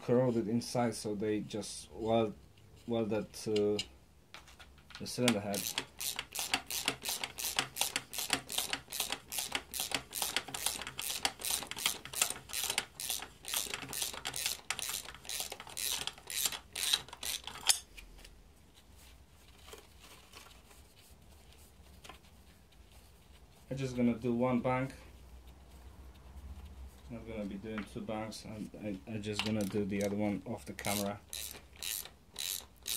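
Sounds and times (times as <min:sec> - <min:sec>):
ratchet wrench clicking: 0:05.3 - 0:17.8, 0:30.8 - 0:32.9.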